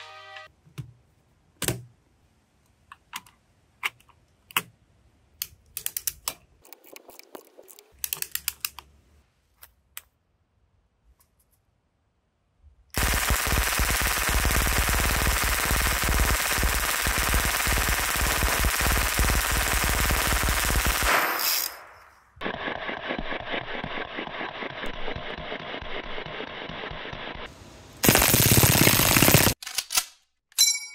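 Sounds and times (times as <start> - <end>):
muffled rapid gunfire: 13.0 - 21.2, 28.0 - 29.6
submachine gun full-auto fire: 13.0 - 21.9, 28.0 - 29.6.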